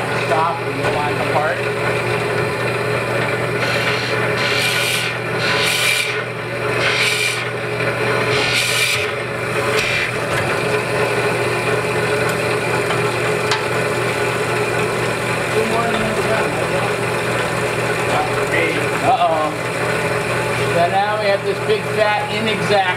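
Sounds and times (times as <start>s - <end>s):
boring machine motor hum: 0.0s - 22.9s
drill bit rasping into wood: 3.6s - 7.5s, 8.2s - 10.2s.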